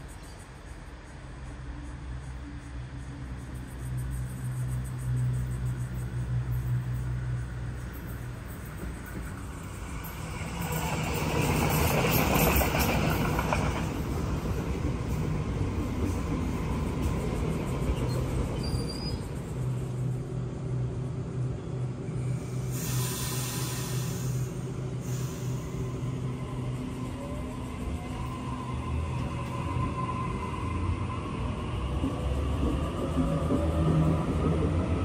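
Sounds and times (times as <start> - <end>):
electric train slowing to a stop: 0.0 - 35.0
train humming: 0.0 - 35.0
air hiss bursts: 22.6 - 25.9.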